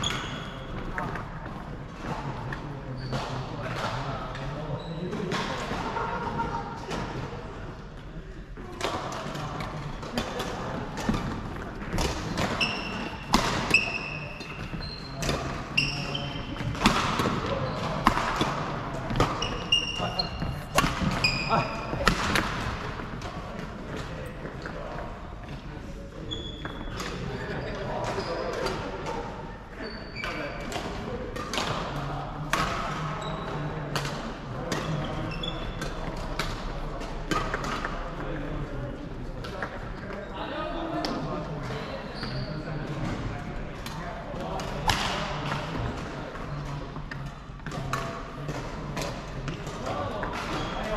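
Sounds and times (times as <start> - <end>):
shoes squeaking on wooden court: 0.0 - 1.2, 2.2 - 3.5, 4.7 - 5.2, 9.8 - 24.6, 26.2 - 30.8, 33.2 - 33.7, 34.8 - 36.2, 42.1 - 43.1, 50.1 - 50.9
racket hitting shuttlecock: 10.1 - 24.0
shoes squeaking on wooden floor: 12.0 - 16.6, 19.2 - 22.1, 26.3 - 27.0.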